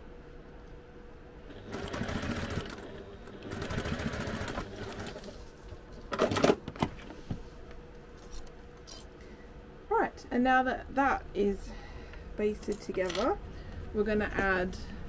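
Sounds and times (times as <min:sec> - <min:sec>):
sewing machine stitching: 0:01.5 - 0:05.4.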